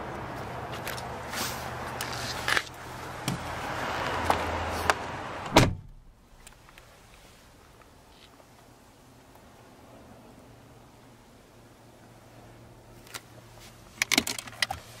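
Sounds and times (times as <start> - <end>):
outside background noise: 0.0 - 15.0
car door thud: 5.5 - 6.1.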